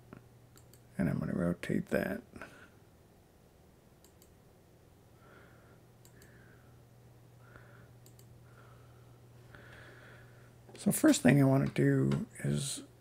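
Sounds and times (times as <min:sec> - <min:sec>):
low steady hum: 0:00.0 - 0:13.0
computer mouse clicks: 0:00.5 - 0:00.9, 0:04.0 - 0:04.4, 0:06.0 - 0:06.4, 0:08.0 - 0:08.3.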